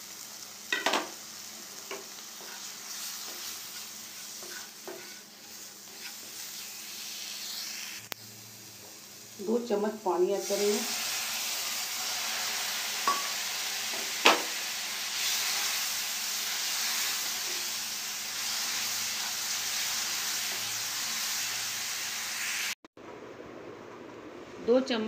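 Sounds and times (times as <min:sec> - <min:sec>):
food sizzling in a frying pan: 0:00.0 - 0:22.8
spatula stirring: 0:01.9 - 0:07.6.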